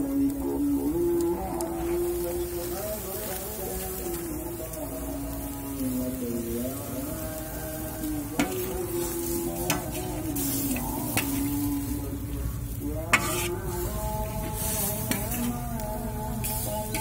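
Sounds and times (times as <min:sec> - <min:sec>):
stew sizzling: 0:00.0 - 0:17.0
metal spatula scraping a wok: 0:08.3 - 0:15.6
spatula clanking on pan: 0:13.1 - 0:13.5.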